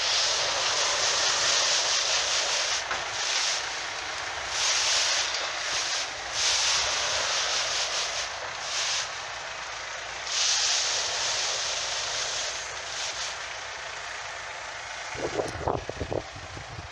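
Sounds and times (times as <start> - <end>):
low truck rumble: 0.0 - 16.9
wind buffeting microphone: 15.1 - 16.9.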